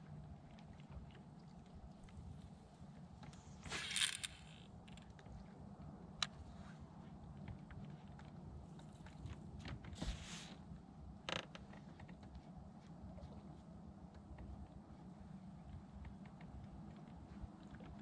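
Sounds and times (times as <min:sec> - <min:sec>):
fishing reel cranking and ticking: 0:03.7 - 0:05.0.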